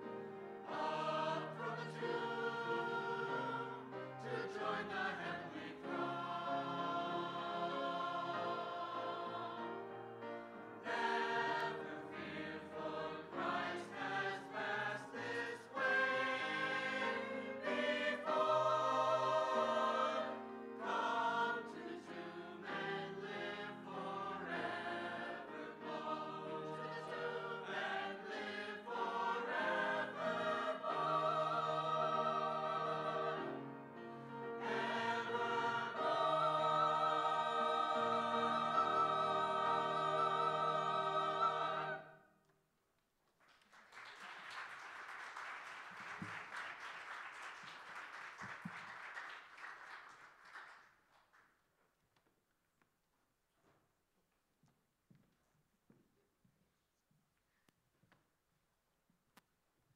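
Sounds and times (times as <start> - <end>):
mixed choir singing: 0.0 - 42.3.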